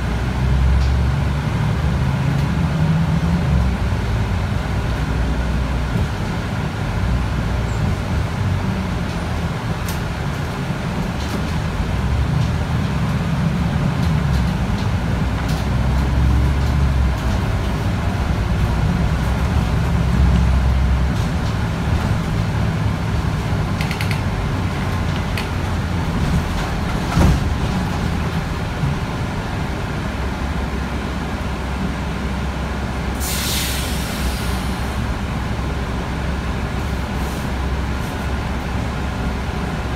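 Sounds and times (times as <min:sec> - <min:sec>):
bus diesel engine rumbling: 0:00.0 - 0:39.9
pneumatic air hiss: 0:33.2 - 0:34.8.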